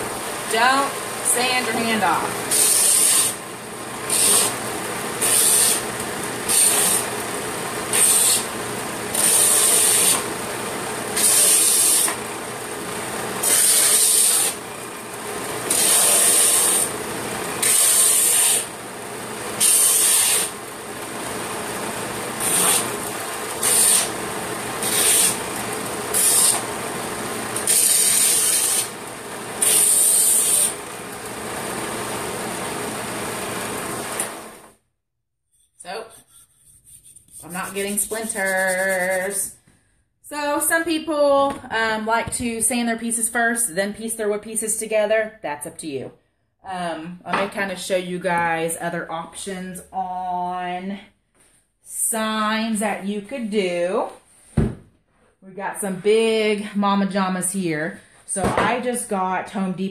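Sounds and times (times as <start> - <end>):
belt sander running: 0.0 - 34.6
wood sanding hiss: 23.6 - 24.1, 26.1 - 26.6, 37.0 - 39.4.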